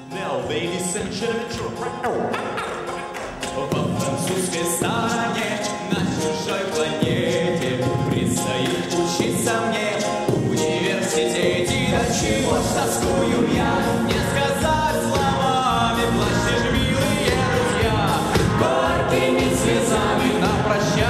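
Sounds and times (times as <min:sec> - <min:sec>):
backing vocals: 0:00.0 - 0:21.0
man singing lead vocals: 0:00.0 - 0:21.0
steady drum beat: 0:11.5 - 0:21.0.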